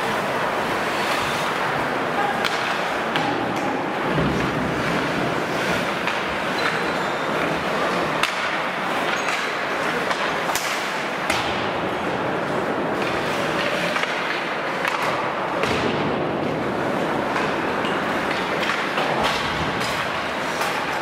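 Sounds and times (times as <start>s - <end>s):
skate blades scraping ice: 0.0s - 3.2s, 4.0s - 11.0s, 12.4s - 14.9s, 16.6s - 21.0s
hockey sticks and puck clacking: 0.0s - 21.0s.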